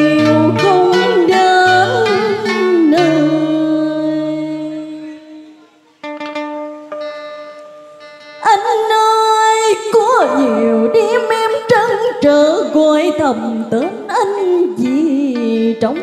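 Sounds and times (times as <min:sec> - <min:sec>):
woman singing: 0:00.0 - 0:05.2, 0:08.4 - 0:16.0
plucked string instrument: 0:00.0 - 0:16.0
held musical note: 0:09.9 - 0:12.5.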